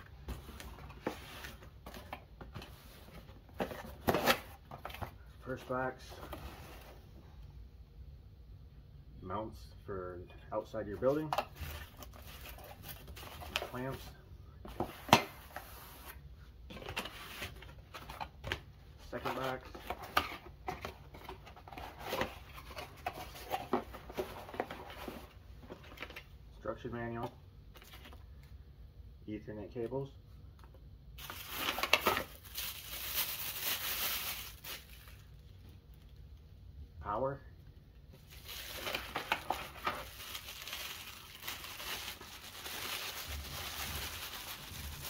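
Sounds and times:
plastic packaging crinkling: 31.2 - 36.1, 38.2 - 45.0.

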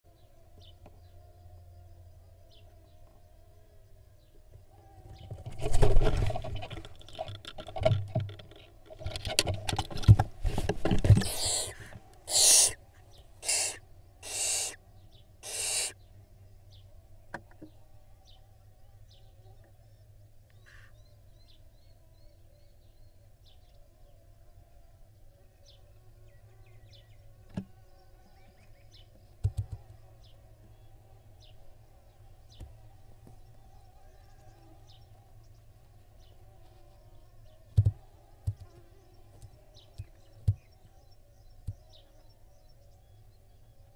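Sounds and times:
owl flapping and thumping: 5.2 - 12.0
owl hissing screeches: 11.2 - 12.8, 13.4 - 14.8, 15.4 - 16.0.

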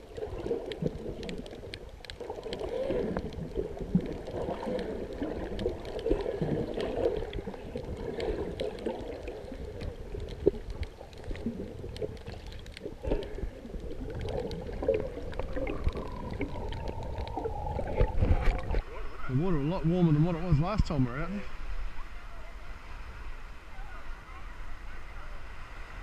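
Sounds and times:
water sloshing and bubbling underwater: 0.0 - 26.0
small scattered clicks: 8.1 - 17.4.

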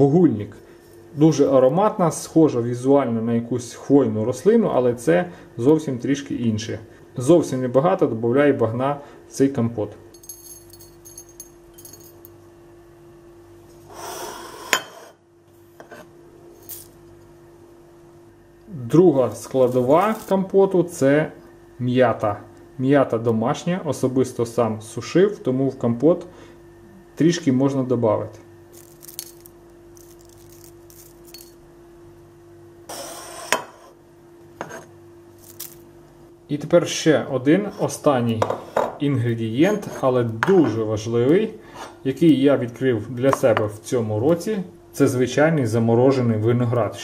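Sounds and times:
steady low hum: 0.0 - 47.0
ceramic dish clink: 14.7 - 15.1
dried leaves rustling and crackling: 28.7 - 31.4.

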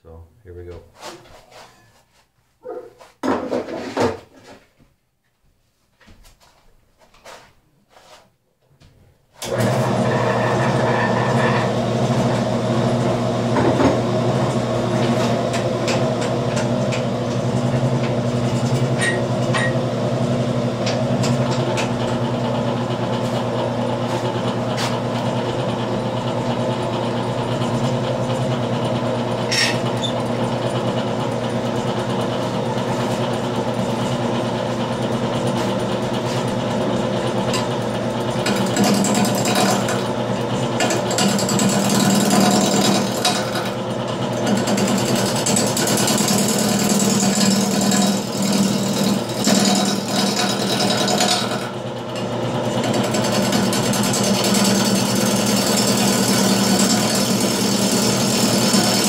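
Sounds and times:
wood lathe motor humming: 9.4 - 59.0.

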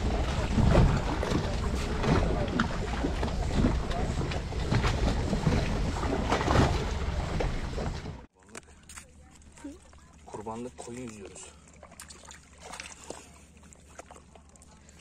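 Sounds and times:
wind buffeting microphone: 0.0 - 8.2
knocks and thumps from boat: 0.0 - 8.3.

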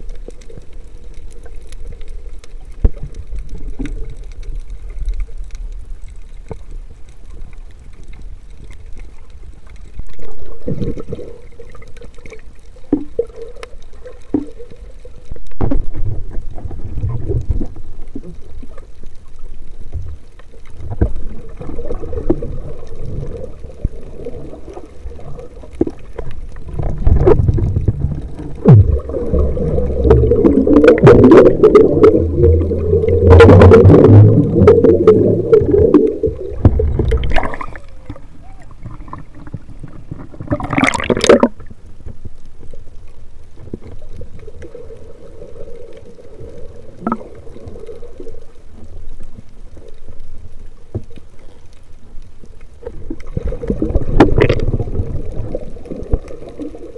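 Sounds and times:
muffled underwater rumble: 0.0 - 56.9
underwater bubbling: 0.0 - 56.9.

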